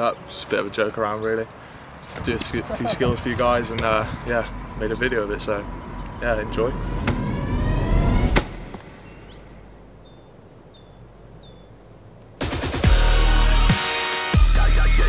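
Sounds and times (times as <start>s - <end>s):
rising whoosh with sharp hit: 5.6s - 9.7s
small bird chirping: 8.8s - 12.2s
electronic dubstep music: 12.4s - 15.0s.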